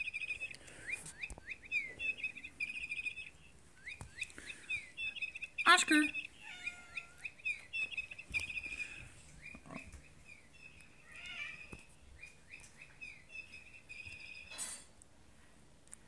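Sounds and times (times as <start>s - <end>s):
electronic bird chirping toy: 1.2s - 9.6s, 13.0s - 14.5s.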